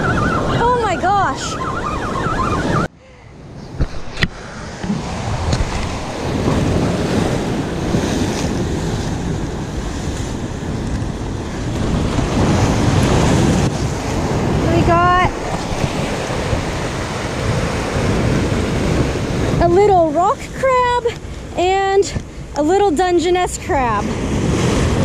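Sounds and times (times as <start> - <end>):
wind buffeting microphone: 0.0 - 25.0
surf breaking against rocks: 3.8 - 21.6.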